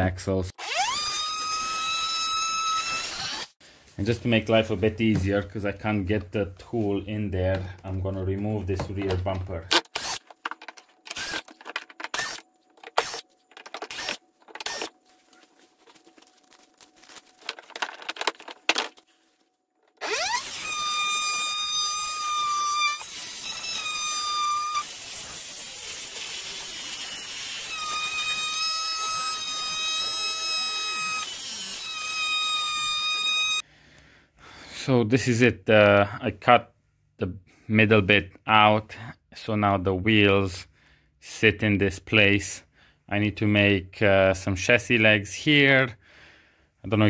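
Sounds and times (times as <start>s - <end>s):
power tool cutting hard plastic: 0.6s - 3.6s, 9.7s - 10.3s, 11.1s - 11.5s, 12.1s - 14.9s, 20.0s - 33.6s
drill-driver backing out screws: 9.7s - 14.9s.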